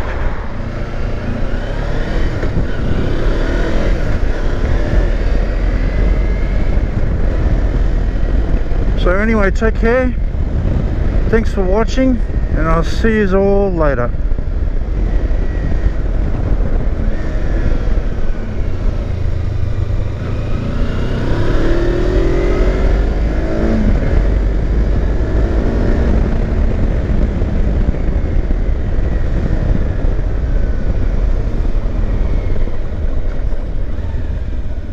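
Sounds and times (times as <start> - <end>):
motorcycle engine running: 14.2 - 34.9.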